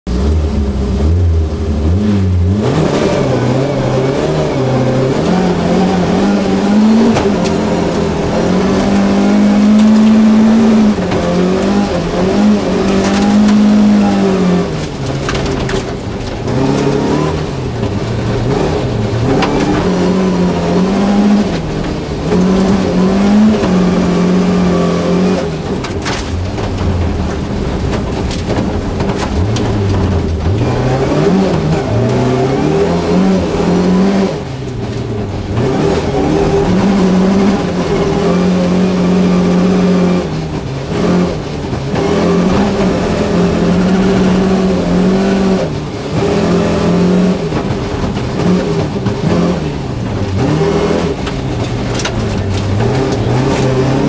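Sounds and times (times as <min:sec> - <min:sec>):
rally car engine revving: 0:00.0 - 0:54.0
gravel noise under car: 0:41.7 - 0:54.0.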